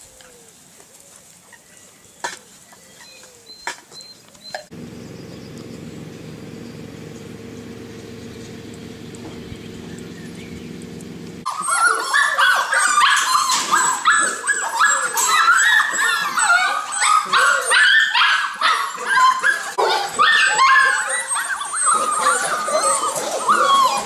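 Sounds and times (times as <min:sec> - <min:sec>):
puppies whining and yipping: 0:02.8 - 0:24.0
low hum: 0:04.7 - 0:11.5.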